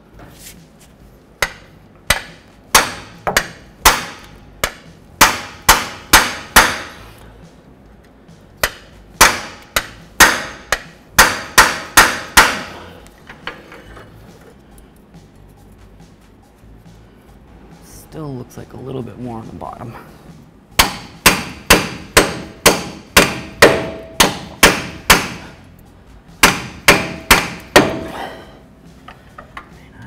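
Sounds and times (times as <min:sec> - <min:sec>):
hammer blows ringing on metal: 0:02.1 - 0:07.0, 0:08.6 - 0:12.9, 0:20.8 - 0:25.6, 0:26.4 - 0:28.4.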